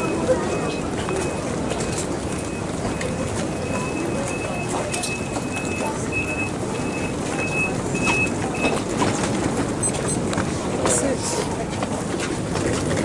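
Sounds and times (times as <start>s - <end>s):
train door beeping: 0.0s - 10.3s
crowd walking with suitcases: 0.0s - 13.0s.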